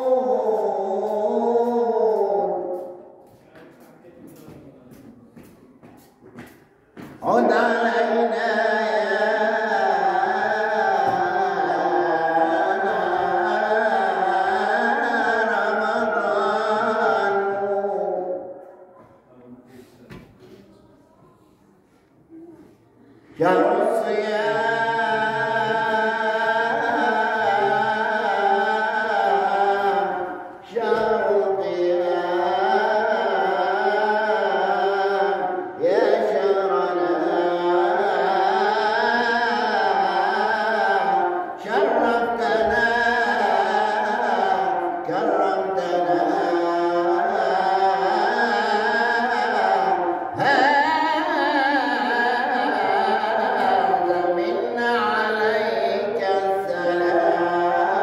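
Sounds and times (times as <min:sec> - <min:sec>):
man singing a religious chant: 0:00.0 - 0:05.9, 0:07.0 - 0:20.6, 0:23.2 - 0:58.0.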